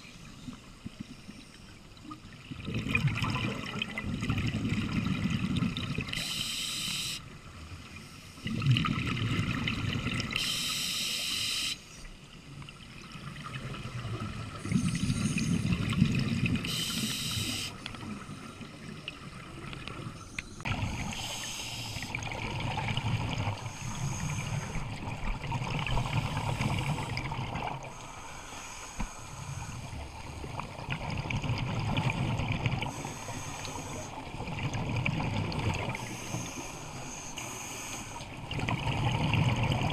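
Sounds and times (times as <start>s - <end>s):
exhaled bubbling rumble: 2.5s - 6.1s, 8.5s - 10.3s, 13.1s - 16.7s, 22.1s - 23.6s, 30.1s - 32.9s, 34.3s - 36.0s, 38.4s - 39.9s
regulator inhale hiss: 6.2s - 7.3s, 10.4s - 12.1s, 16.6s - 17.8s, 20.5s - 22.2s, 23.6s - 24.8s, 25.9s - 30.0s, 32.9s - 34.3s, 36.0s - 38.4s.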